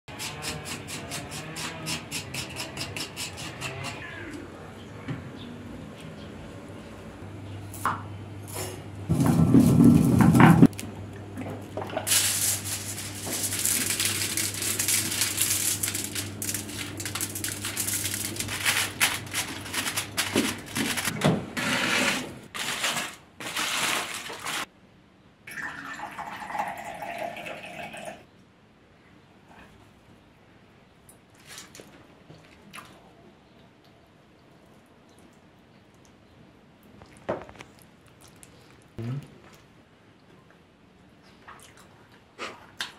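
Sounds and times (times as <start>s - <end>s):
aluminium foil crinkling: 11.9s - 21.1s, 22.5s - 24.7s.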